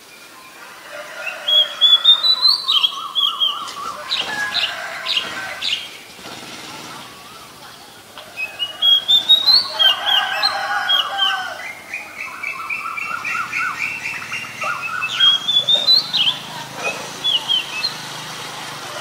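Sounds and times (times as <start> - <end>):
bird singing whistled notes: 1.5 - 4.7, 8.3 - 16.5, 17.2 - 18.1.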